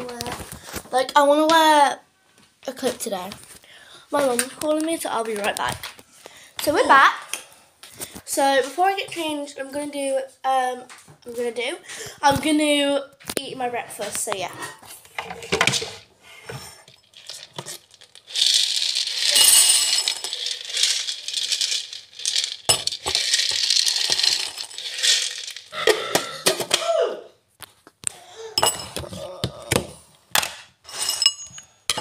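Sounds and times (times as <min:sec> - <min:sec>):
cereal pouring into a bowl: 0:17.0 - 0:25.8
container and spoon clinking on bowl: 0:17.2 - 0:26.0.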